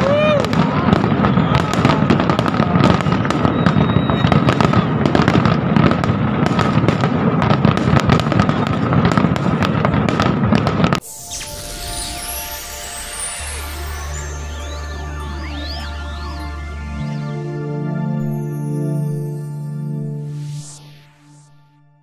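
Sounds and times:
fireworks bangs and crackles: 0:00.0 - 0:16.6
outro music: 0:11.0 - 0:22.0.

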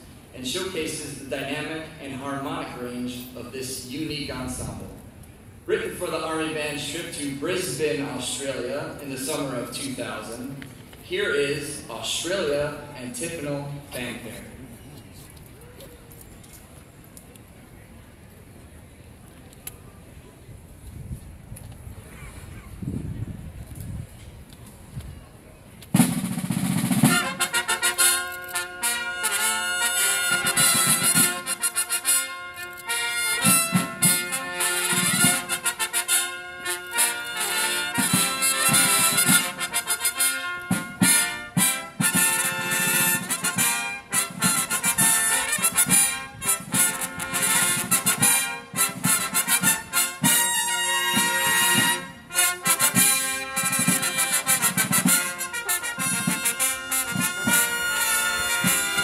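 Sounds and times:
field drum strokes: 0:25.9 - 0:28.1, 0:28.8 - 0:31.9, 0:33.4 - 0:36.8, 0:37.6 - 0:59.0
brass fanfare trumpets: 0:26.0 - 0:59.0.

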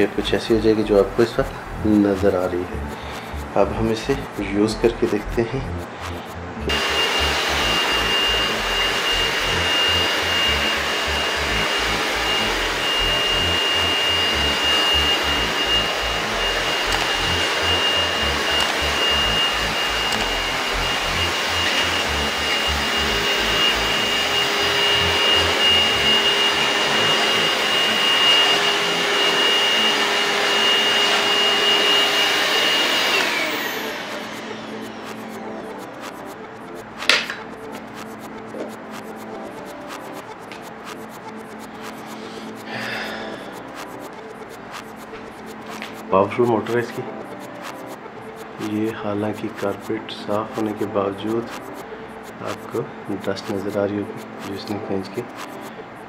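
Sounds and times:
vacuum cleaner whining on carpet: 0:06.7 - 0:35.4.

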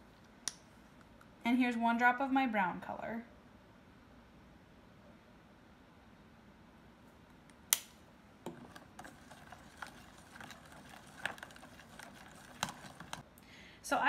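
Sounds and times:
metal spoon stirring in plastic container: 0:08.5 - 0:13.2.

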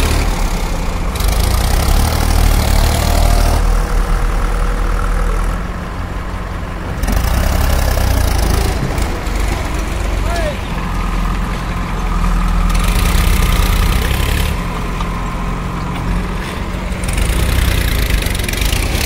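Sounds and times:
tractor diesel engine running: 0:00.0 - 0:19.0.

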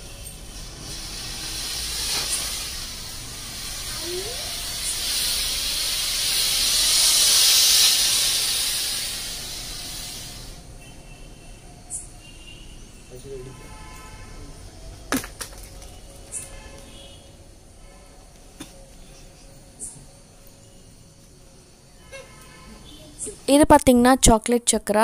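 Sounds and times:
smoke firework hissing: 0:00.0 - 0:10.9.

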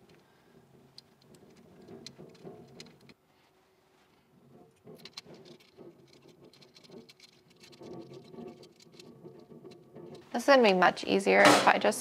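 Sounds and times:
small metal pieces clicking: 0:05.0 - 0:10.2.

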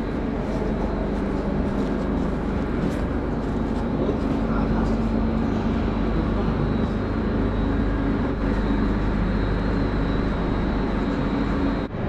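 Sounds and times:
train humming and rumbling: 0:00.0 - 0:12.0.

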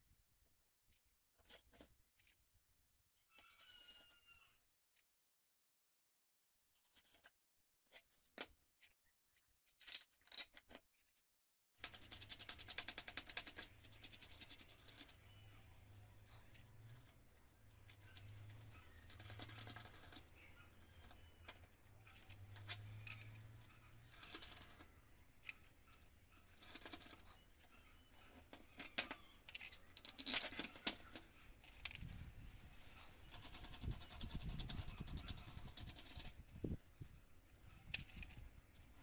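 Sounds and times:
nut spun onto bolt clicking: 0:17.9 - 0:21.6
steel parts clinking and tapping: 0:28.4 - 0:32.0.

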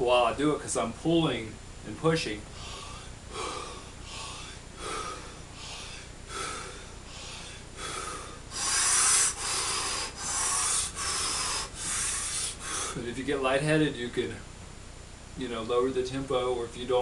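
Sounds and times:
rapid forceful mouth breathing: 0:02.5 - 0:13.0.

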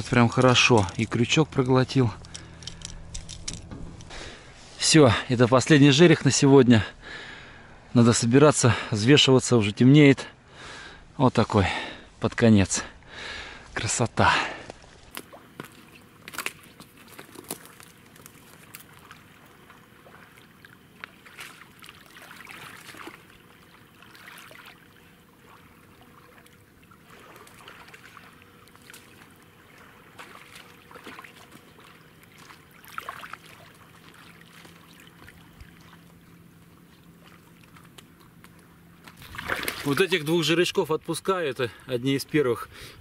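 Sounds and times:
boots stepping through water and mud: 0:14.7 - 0:24.8, 0:25.4 - 0:40.5
light splashes: 0:14.8 - 0:41.3
water trickling: 0:16.8 - 0:38.3.

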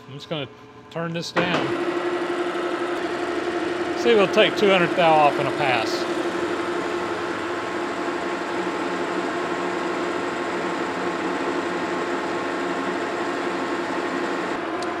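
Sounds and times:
metal lathe humming: 0:01.5 - 0:15.0.

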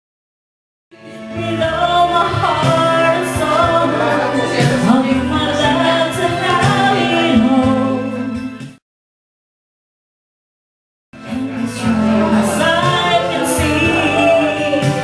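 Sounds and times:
backing music: 0:00.9 - 0:08.8, 0:11.2 - 0:15.0
woman singing into microphone: 0:01.0 - 0:08.4, 0:11.2 - 0:15.0.

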